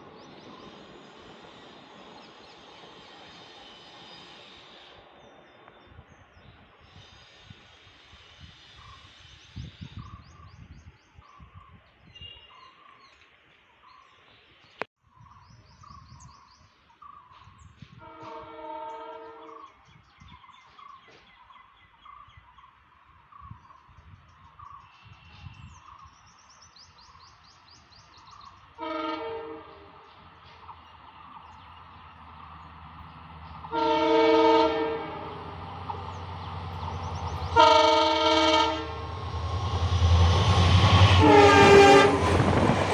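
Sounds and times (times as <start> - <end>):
train engine rumble: 0.0 - 11.8, 24.4 - 42.9
locomotive horn blasts: 18.0 - 19.6, 28.8 - 30.0, 33.7 - 35.6, 37.5 - 39.2, 41.0 - 42.4.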